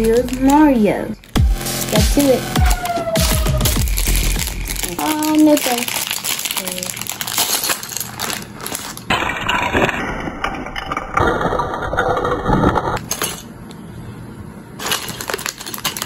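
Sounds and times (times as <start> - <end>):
plastic bag crinkling: 0.0 - 9.9, 14.8 - 16.0.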